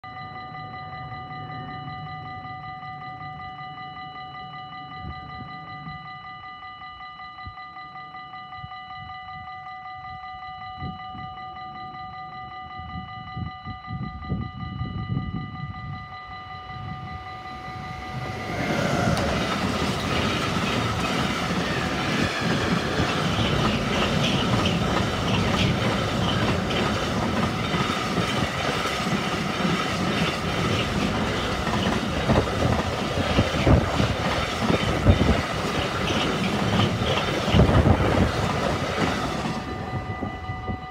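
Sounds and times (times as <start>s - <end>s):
level crossing bell ringing: 14.8s - 40.9s
train rumble: 16.8s - 40.9s
wheels clattering over rail joints: 18.4s - 39.6s.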